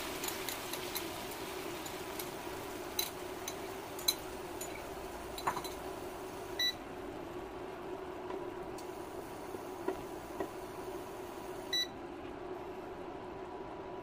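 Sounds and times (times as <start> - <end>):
sauce bubbling and crackling: 0.0 - 6.6
steady hum: 0.0 - 14.0.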